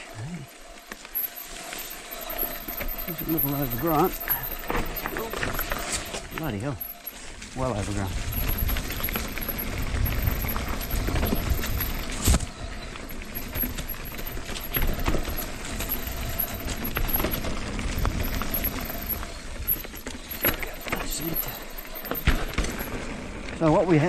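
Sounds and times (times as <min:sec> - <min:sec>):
bike frame and chain rattling: 0:00.0 - 0:24.0
bike tyres rumbling on dirt: 0:00.0 - 0:24.0.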